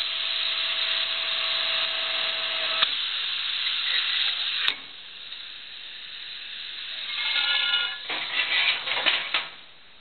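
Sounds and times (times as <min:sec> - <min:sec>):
machine whine: 0:00.0 - 0:05.4, 0:06.8 - 0:09.2
steady hiss: 0:00.0 - 0:10.0.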